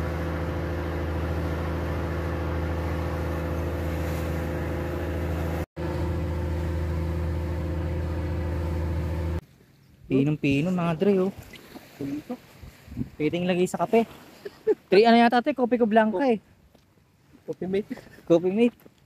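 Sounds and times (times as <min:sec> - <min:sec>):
boat engine droning: 0:00.0 - 0:09.4.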